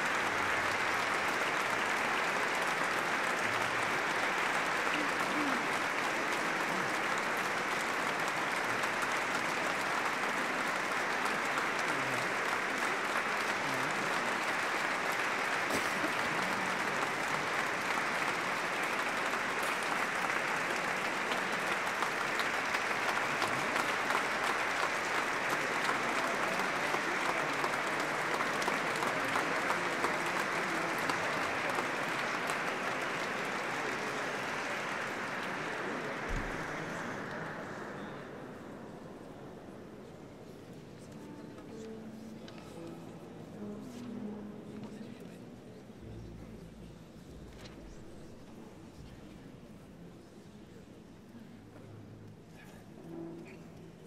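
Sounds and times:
audience applauding: 0.0 - 39.3.

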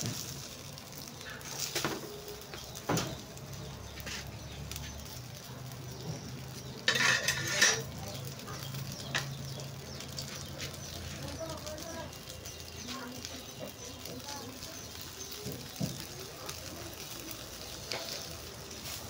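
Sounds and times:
metal tongs clinking on grill grate: 1.0 - 19.0
metallic clatter: 6.8 - 8.0.

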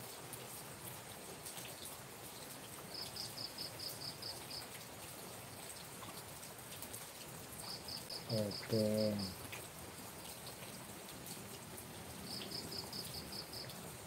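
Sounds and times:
faint hiss: 0.0 - 14.0
water dripping: 0.0 - 14.0
cricket chirping: 2.9 - 4.6, 7.6 - 9.4, 12.2 - 13.8.

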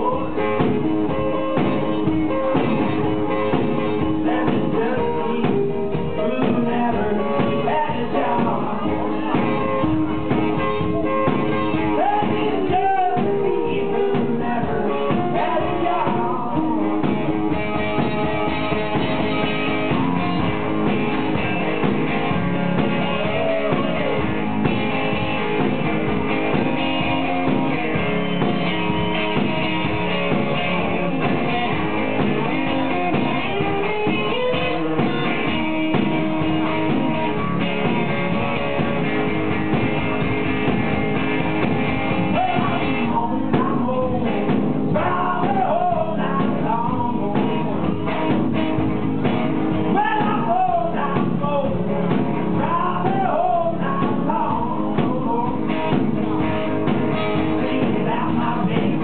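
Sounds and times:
amplified blues guitar: 0.0 - 59.0.

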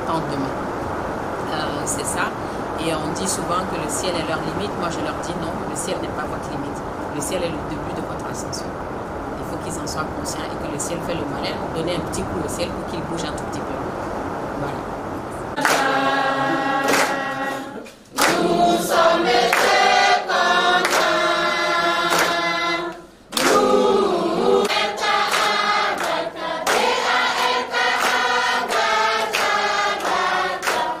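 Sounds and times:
group singing together: 15.5 - 31.0
hand claps: 15.6 - 16.0, 16.8 - 17.4, 18.0 - 18.5, 19.4 - 19.8, 20.8 - 21.2, 22.1 - 23.7, 24.6 - 31.0.

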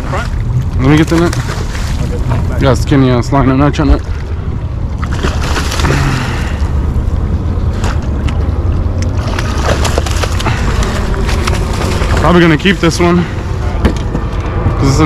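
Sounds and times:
wind rumble on microphone: 0.0 - 15.0
fish splashing at surface: 5.0 - 6.6
landing net dipping in water: 9.0 - 12.2.

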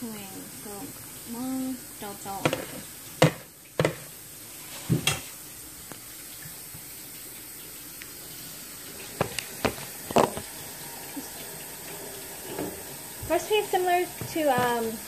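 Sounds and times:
phone and plastic bowl knocks: 2.4 - 4.0, 9.2 - 10.4.

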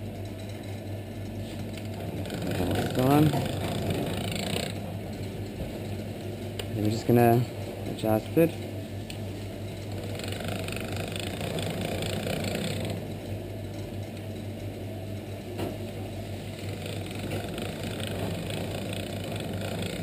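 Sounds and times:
pasta machine motor hum: 0.9 - 20.0.

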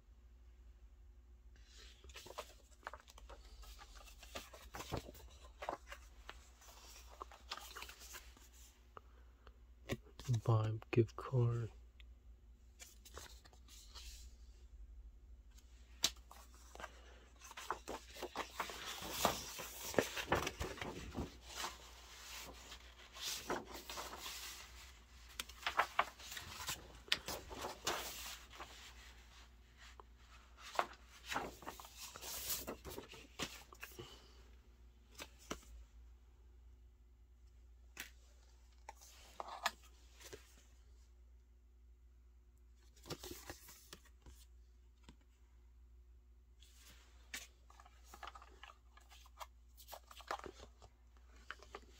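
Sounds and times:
paper rustling: 1.6 - 8.7, 15.9 - 34.4, 46.6 - 51.9.

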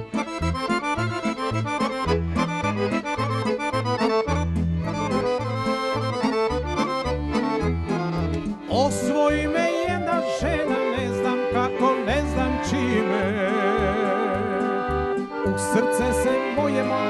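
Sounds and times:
accordion melody: 0.0 - 17.0
bass line: 0.0 - 17.0.

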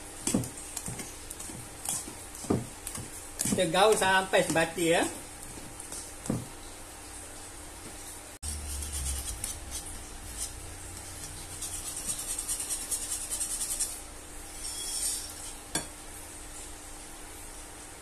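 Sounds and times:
whisk scraping against bowl: 0.2 - 4.8, 8.4 - 15.6.

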